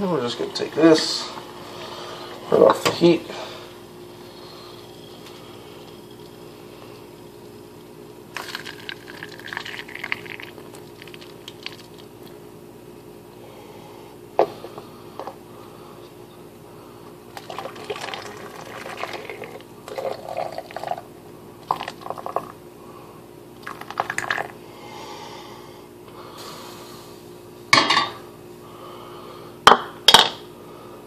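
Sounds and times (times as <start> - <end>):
water pouring through funnel: 8.3 - 12.1, 17.4 - 22.5, 23.6 - 24.5.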